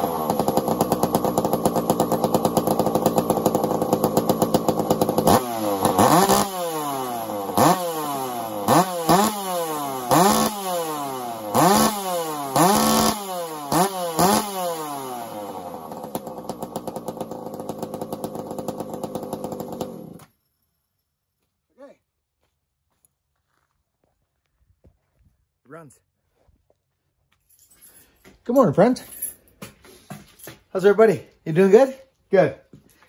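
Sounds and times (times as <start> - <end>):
chainsaw engine revving and idling: 0.0 - 20.4.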